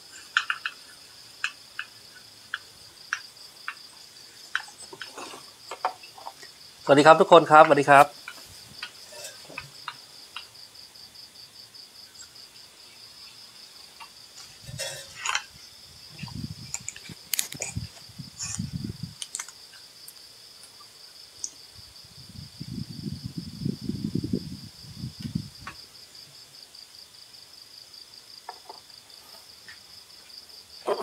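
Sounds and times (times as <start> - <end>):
insect chirping: 0.0 - 31.0
low muffled thumps and rustles: 16.1 - 19.2
sharp clicks: 19.2 - 19.6.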